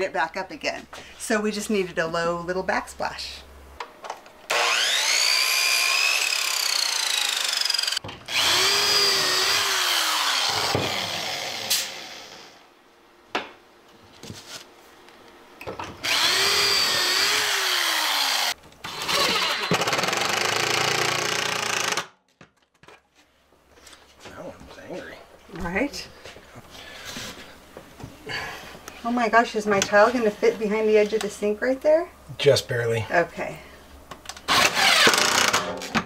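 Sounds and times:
drill whining: 4.5 - 12.5, 16.0 - 22.1, 34.5 - 35.7
miter saw cutting wood: 4.5 - 12.6, 16.0 - 22.1, 34.5 - 35.6.

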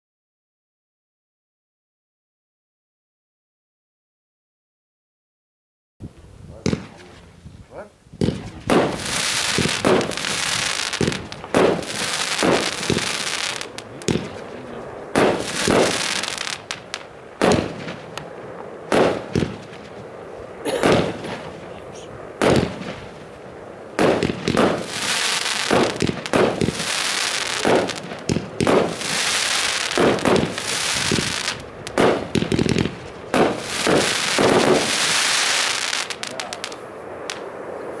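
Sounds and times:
fireworks bangs with crackling hiss: 6.6 - 7.3, 8.2 - 37.8.

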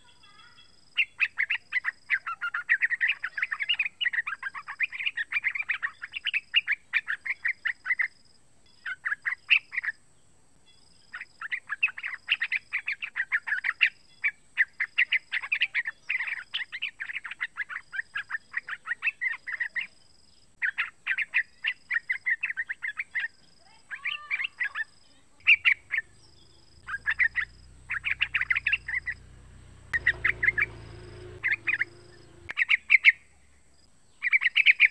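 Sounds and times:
bird chattering song: 0.0 - 33.4, 34.1 - 34.9
faint low hum: 0.0 - 34.3.

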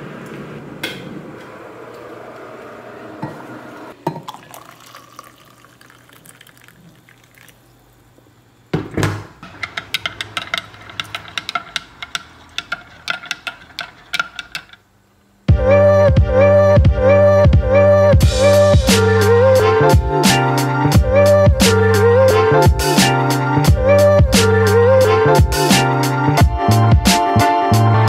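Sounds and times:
hot water pouring into glass mug: 4.0 - 8.0.

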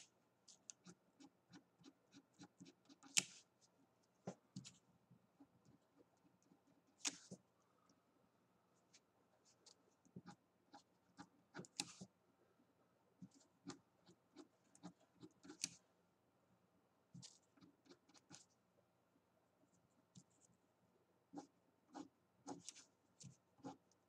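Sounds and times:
pencil scratching on paper: 0.0 - 3.7, 9.5 - 12.1, 13.2 - 15.8, 17.2 - 18.5, 21.3 - 24.0.

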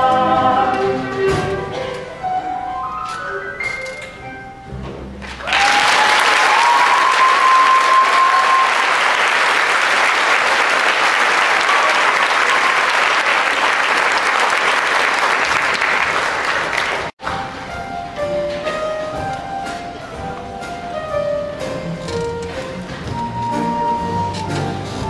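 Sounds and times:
audience applauding: 5.2 - 17.2.

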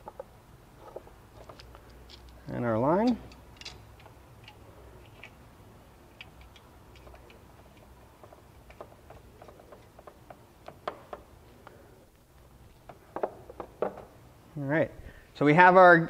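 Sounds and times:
small metal clicks: 0.0 - 5.4, 6.1 - 11.8.

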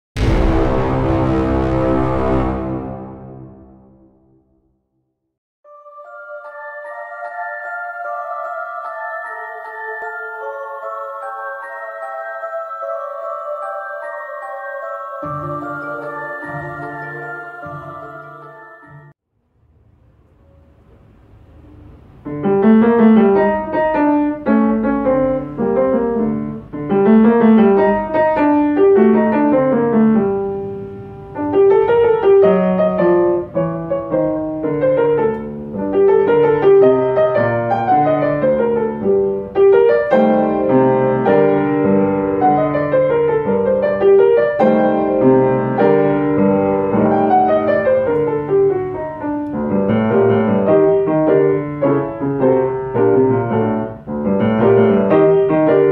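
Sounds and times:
lively upright piano piece: 21.8 - 55.9.

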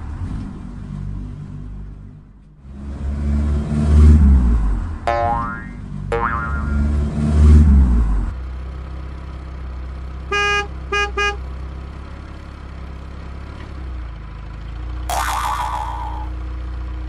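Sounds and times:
rising boing sound effect: 5.1 - 6.9, 15.1 - 16.4
car horn beeps: 10.3 - 11.4.

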